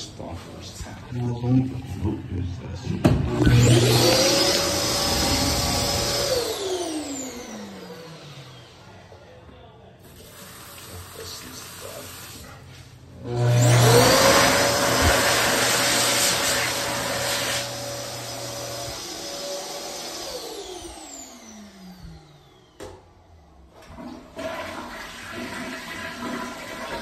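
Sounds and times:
toilet flushing: 0:03.2 - 0:07.8, 0:13.2 - 0:20.3, 0:23.7 - 0:27.0
electric hand dryer blowing: 0:03.2 - 0:08.8, 0:13.2 - 0:23.0.

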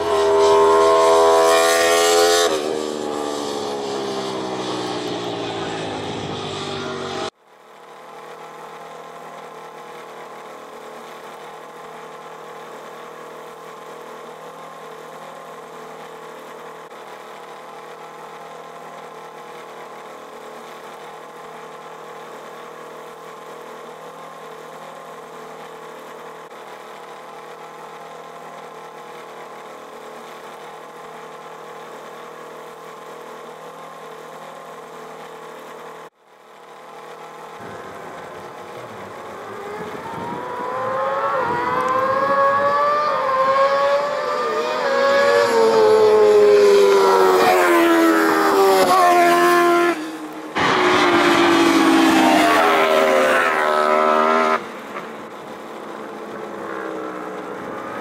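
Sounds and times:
engine idling: 0:04.3 - 0:41.9.

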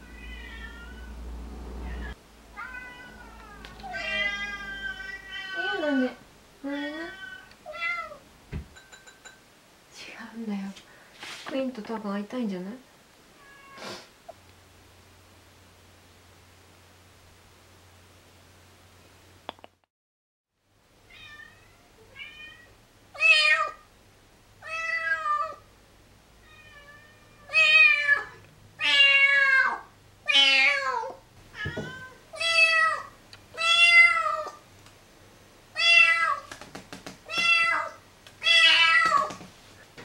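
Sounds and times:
kitten meowing: 0:37.3 - 0:39.4.

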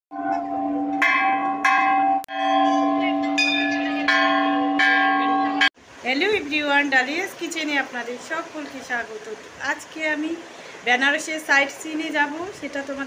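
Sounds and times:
large brass bell ringing: 0:00.1 - 0:05.7.

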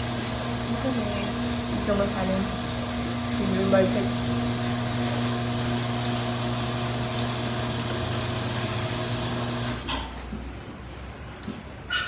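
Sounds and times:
electric motor hum: 0:00.0 - 0:09.9.

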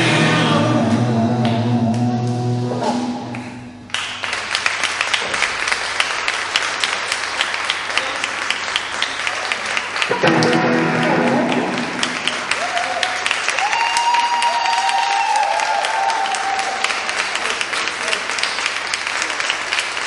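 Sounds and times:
live band song: 0:00.0 - 0:03.7, 0:10.1 - 0:12.6
audience applauding: 0:03.3 - 0:20.0.

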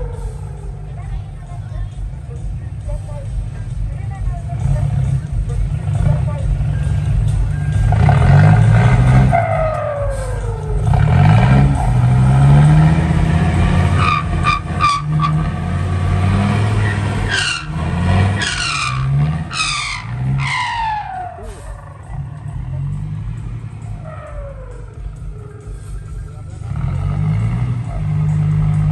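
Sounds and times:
diesel truck engine revving: 0:00.0 - 0:28.9
falling whistle-like sounds: 0:18.4 - 0:22.2, 0:23.8 - 0:25.9.

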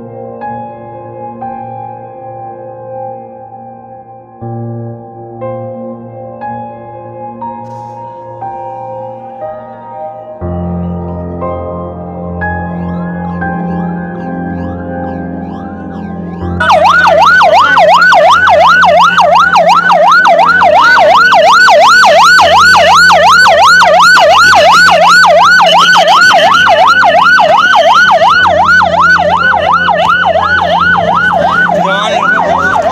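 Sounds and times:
soft music: 0:00.0 - 0:32.9
ambulance siren yelping: 0:12.4 - 0:32.9.

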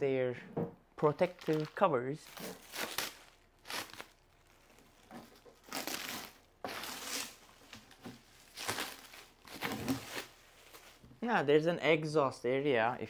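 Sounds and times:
plastic wrap crinkling: 0:01.1 - 0:11.1.

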